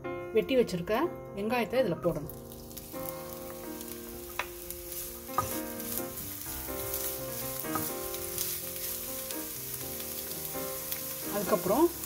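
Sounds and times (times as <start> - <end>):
onion sizzling in oil: 2.1 - 12.0
spatula knocking on pan: 5.3 - 5.8, 7.7 - 8.1.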